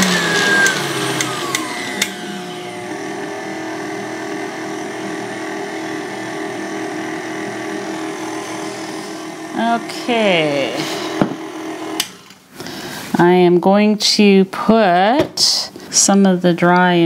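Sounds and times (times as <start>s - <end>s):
stand mixer motor running: 0.0s - 12.4s.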